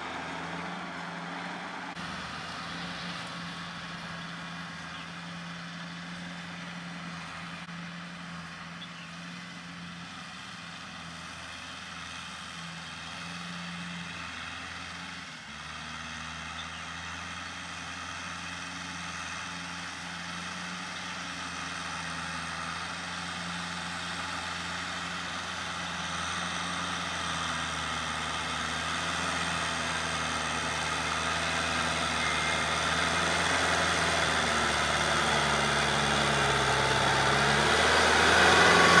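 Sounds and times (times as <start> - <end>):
diesel tractor engine running: 0.0 - 39.0.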